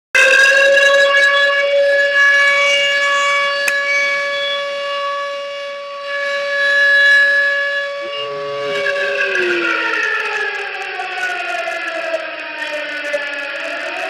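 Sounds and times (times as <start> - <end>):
siren steady tone: 0.2 - 14.0
lower falling siren tone: 6.0 - 14.0.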